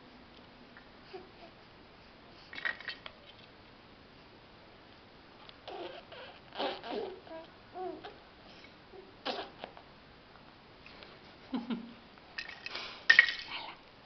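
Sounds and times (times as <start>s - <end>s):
baby vocal sound: 5.6s - 8.2s, 9.0s - 9.8s.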